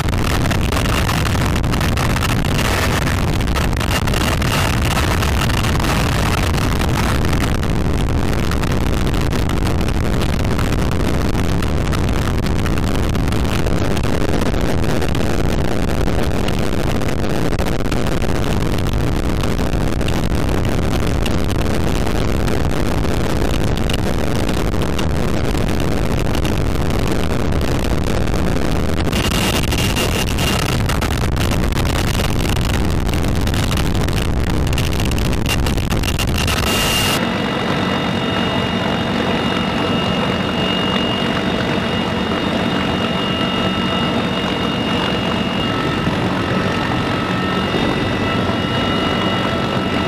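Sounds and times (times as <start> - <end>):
helicopter rotor wash and engine: 0.0 - 8.2, 28.1 - 31.2, 34.9 - 50.0
wind buffeting microphone: 0.0 - 50.0.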